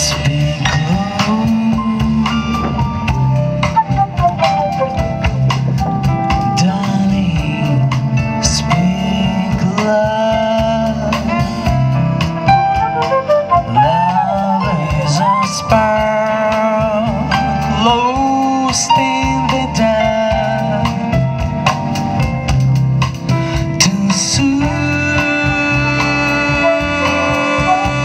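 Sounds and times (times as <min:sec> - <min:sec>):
woodwind: 0:00.0 - 0:06.9, 0:11.1 - 0:17.7, 0:24.7 - 0:28.0
drum kit: 0:00.0 - 0:28.0
guitar: 0:00.0 - 0:28.0
keyboard: 0:00.0 - 0:28.0.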